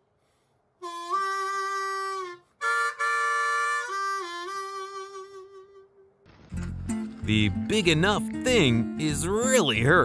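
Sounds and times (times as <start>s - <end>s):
wind instrument holding chords: 0.8s - 6.1s.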